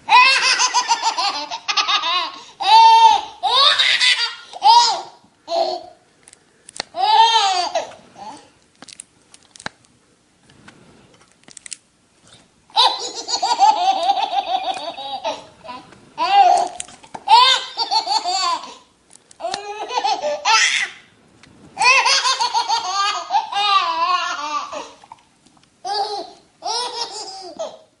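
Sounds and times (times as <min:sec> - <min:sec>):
baby laughing: 0:00.1 - 0:06.0, 0:07.0 - 0:08.5, 0:12.7 - 0:21.0, 0:21.8 - 0:25.0, 0:25.8 - 0:27.9.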